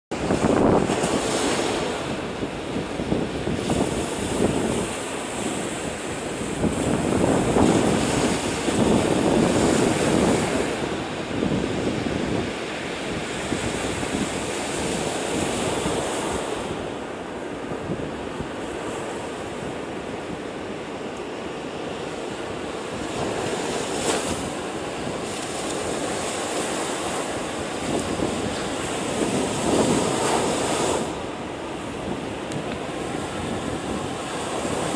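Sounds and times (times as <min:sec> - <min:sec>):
storm surf breaking on beach: 0:00.1 - 0:34.9.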